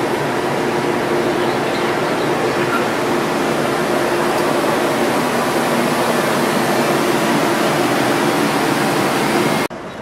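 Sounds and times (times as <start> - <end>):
water rushing past: 2.1 - 9.7.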